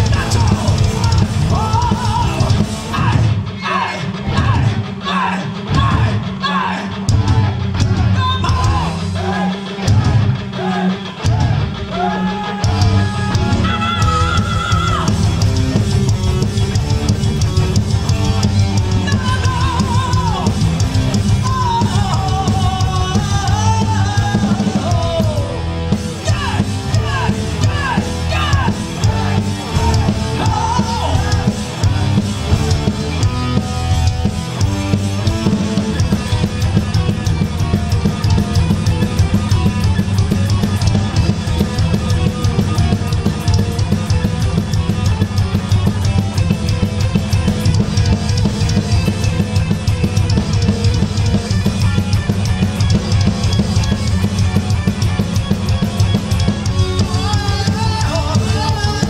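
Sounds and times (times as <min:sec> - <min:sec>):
heavy metal band playing live: 0:00.0 - 0:59.0
sliding lead guitar melody: 0:25.5 - 0:59.0.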